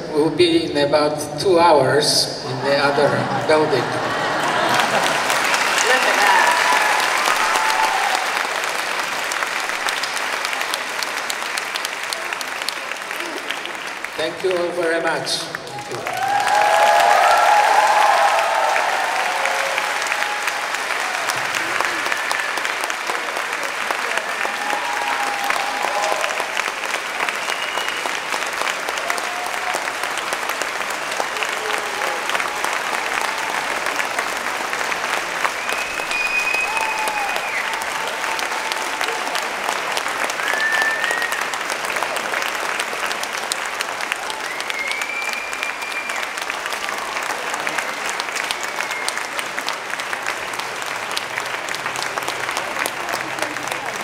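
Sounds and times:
audience applauding: 2.5s - 54.0s
long high whistle: 27.4s - 28.2s, 35.5s - 37.9s, 40.4s - 41.6s, 44.3s - 46.4s.

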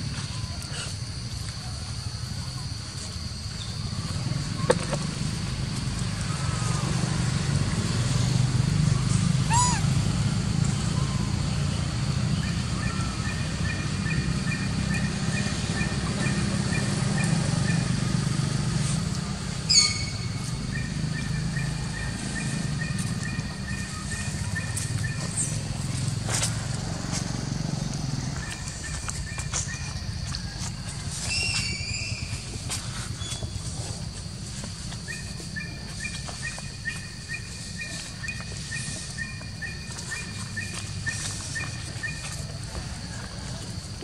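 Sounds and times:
thin trilling call: 9.5s - 9.9s, 19.6s - 26.1s, 35.0s - 43.1s
high chirps: 12.4s - 26.6s.

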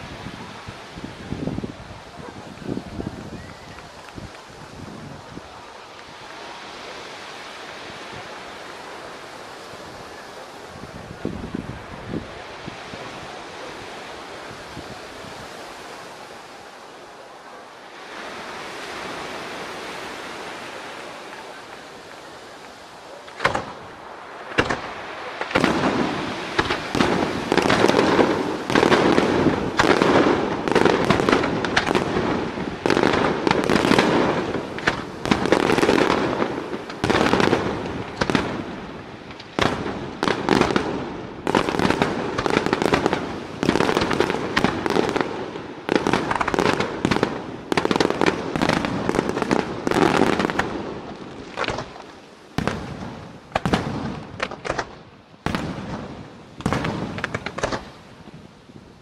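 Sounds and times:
firework shells bursting: 24.5s - 38.7s.

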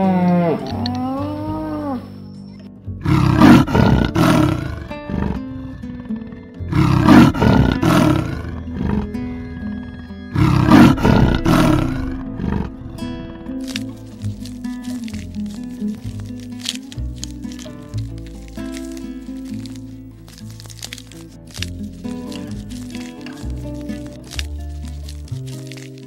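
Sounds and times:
big cat roaring: 0.0s - 2.1s, 3.0s - 15.6s
background music: 0.0s - 26.0s.

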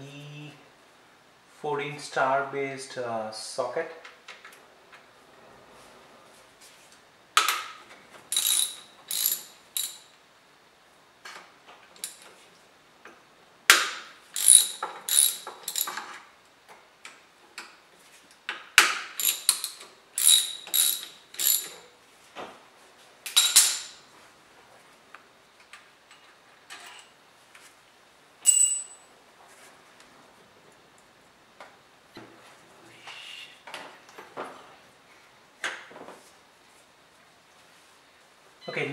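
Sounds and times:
ratchet wrench clicking: 8.3s - 10.0s, 14.4s - 16.1s, 19.2s - 21.8s.

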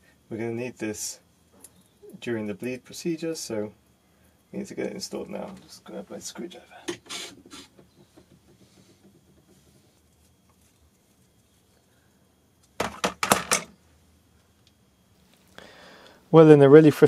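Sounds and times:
faint handling ticks: 4.3s - 12.8s
tools clattering: 12.8s - 13.7s.

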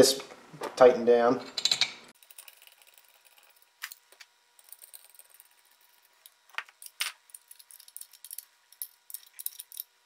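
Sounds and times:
small metal parts clinking: 4.6s - 9.9s.

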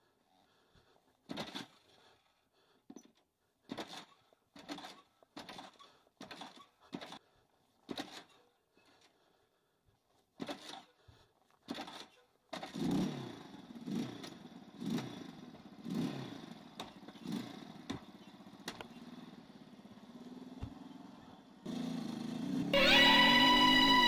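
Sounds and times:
motorcycle engine revving and idling: 11.8s - 22.8s.

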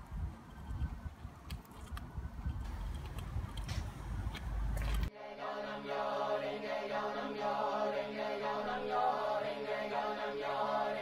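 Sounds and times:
voices chanting a mantra: 5.1s - 11.0s.

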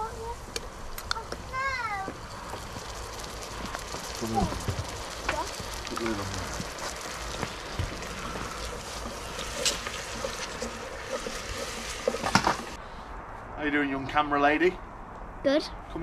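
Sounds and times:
onions sizzling in a pot: 0.0s - 12.8s.

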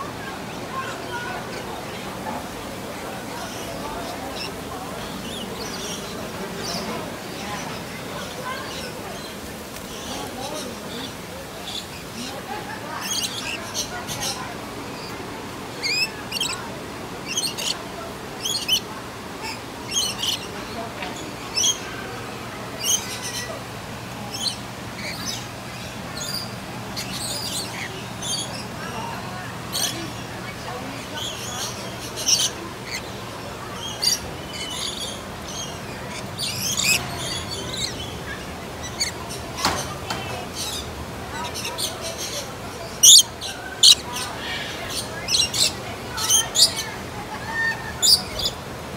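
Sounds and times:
lorikeets screeching and chirping: 3.2s - 9.3s, 9.9s - 22.0s, 22.8s - 23.7s, 24.3s - 48.6s
parrots screeching: 15.8s - 16.6s, 17.2s - 17.8s, 18.4s - 18.8s, 19.4s - 20.5s, 33.8s - 38.1s, 42.8s - 46.9s, 47.5s - 48.6s
high bird chirps: 17.2s - 17.8s, 18.4s - 18.8s, 43.0s - 43.2s.

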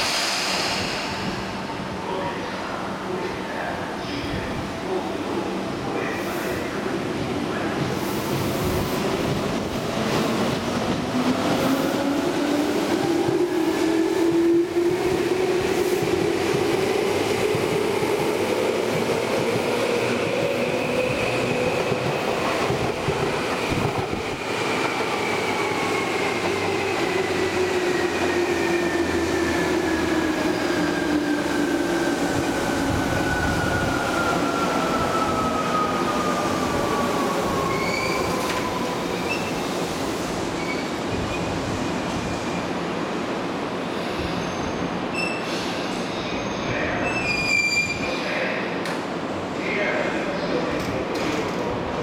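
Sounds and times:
train wheels rumbling on rail: 0.0s - 2.0s, 7.6s - 42.4s.

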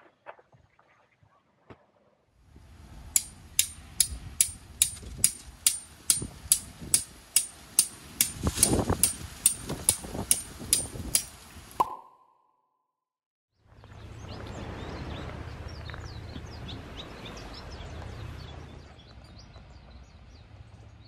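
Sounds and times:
steady clicking beat: 3.2s - 12.1s.

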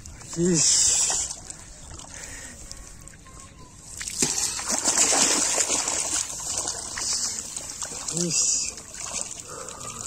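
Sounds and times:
water splashing: 3.9s - 10.0s.

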